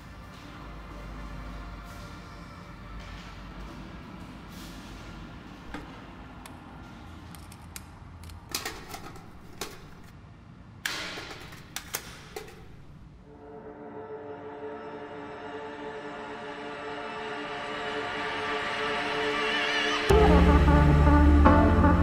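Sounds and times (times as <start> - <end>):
steady sustained tones: 13.2 - 22.0.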